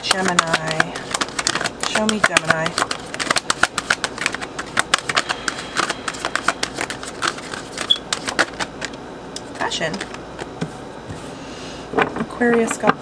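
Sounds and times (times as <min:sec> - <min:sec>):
cards being shuffled: 0:00.0 - 0:11.2.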